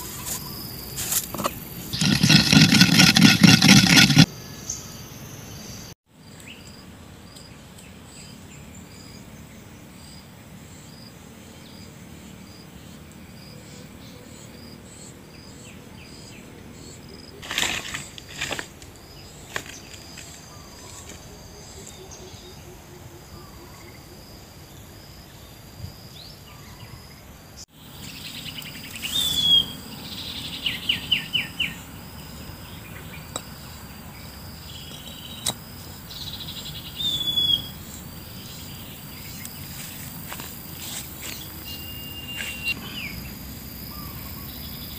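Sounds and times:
insects chirring: 0.0s - 7.5s, 12.5s - 44.9s
bird calls: 27.8s - 44.9s
bird chirping rapidly: 41.2s - 43.2s.

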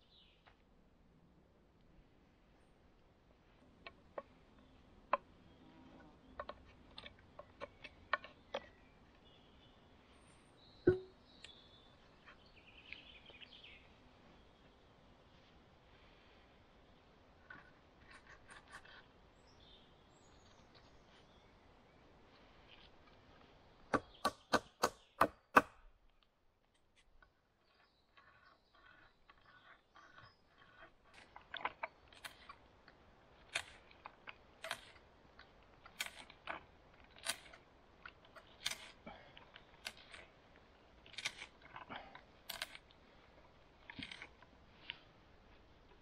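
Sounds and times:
sharp knocks: 10.9s - 11.1s
knife whittling wood: 27.7s - 32.6s.

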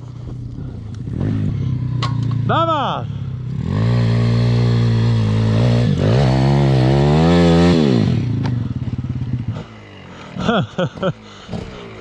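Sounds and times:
dirt bike engine revving: 1.0s - 12.0s.

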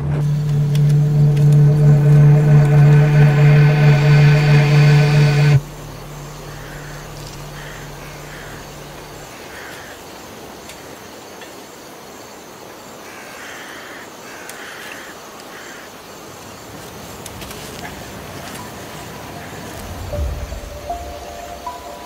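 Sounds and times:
low hum: 0.0s - 9.5s
outdoor ambience hiss: 0.0s - 22.0s
crows cawing: 6.5s - 10.0s, 13.0s - 16.0s.

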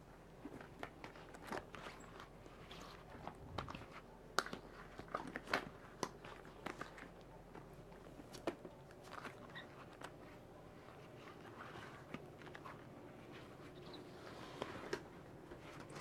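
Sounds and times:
wet smacks and squeaks of rubber: 0.6s - 13.0s.

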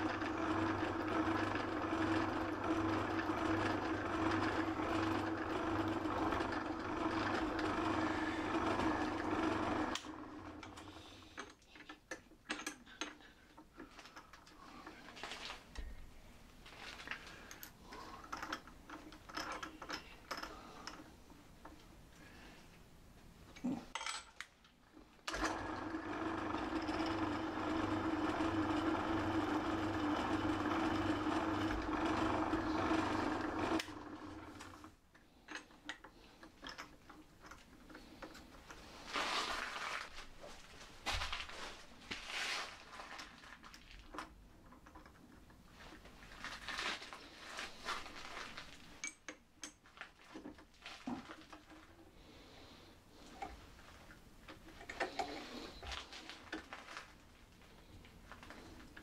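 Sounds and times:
pillar drill motor running: 0.0s - 11.2s, 25.3s - 34.9s.

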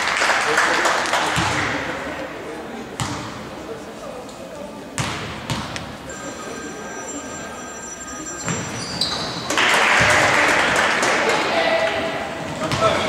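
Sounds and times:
crowd shouting and cheering: 8.5s - 13.0s.

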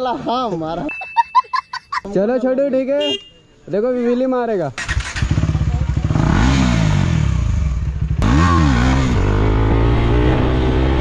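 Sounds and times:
motorcycle engine idling and revving: 4.8s - 11.0s.

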